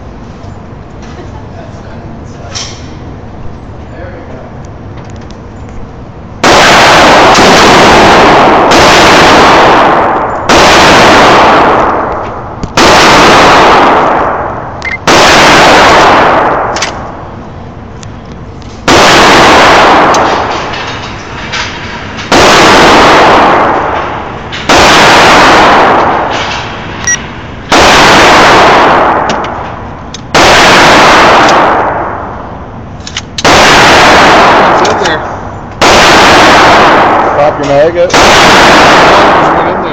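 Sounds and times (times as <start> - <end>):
rifle shots echoing indoors: 6.4 - 17.3, 18.8 - 39.9.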